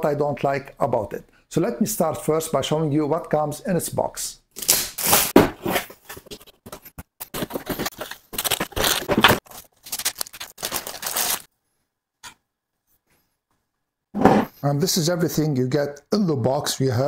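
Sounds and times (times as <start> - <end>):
cardboard and plastic wrap rustling: 5.2 - 11.5.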